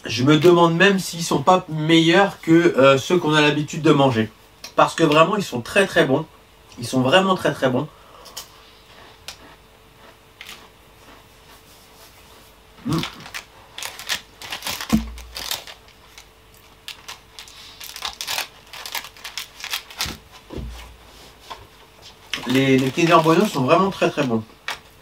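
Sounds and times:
plastic wrapper crinkling: 0:12.9 - 0:20.4, 0:22.3 - 0:24.9
soft thump: 0:14.9 - 0:15.3.

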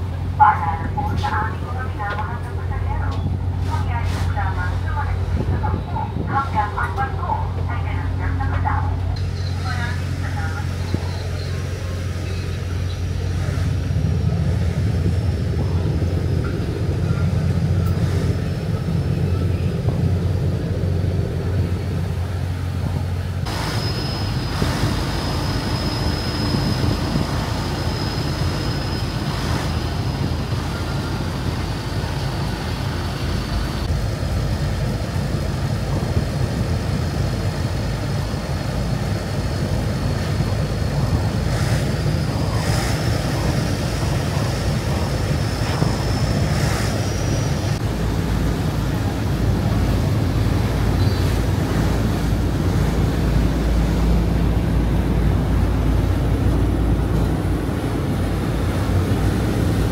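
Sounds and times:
ferry engines droning: 0:00.0 - 0:59.9
faint high whine: 0:23.5 - 0:32.0.

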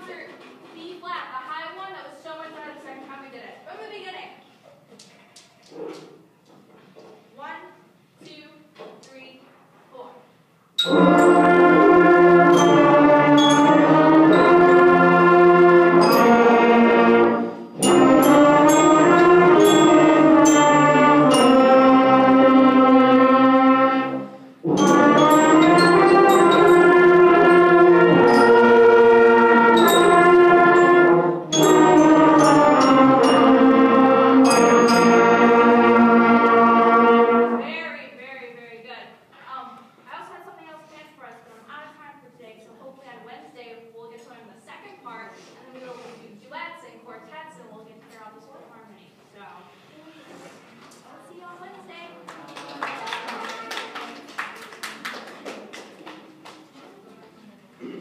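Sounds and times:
school band playing: 0:10.8 - 0:38.0.

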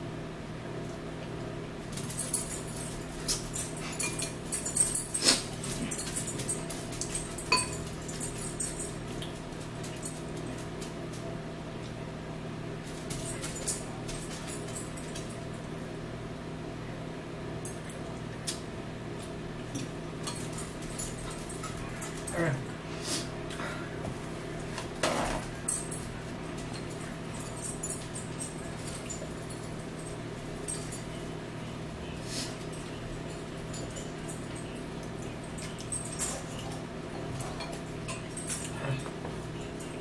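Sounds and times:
forks clicking against bowls: 0:02.0 - 0:11.2, 0:19.2 - 0:22.3, 0:32.8 - 0:36.8, 0:37.4 - 0:40.0.

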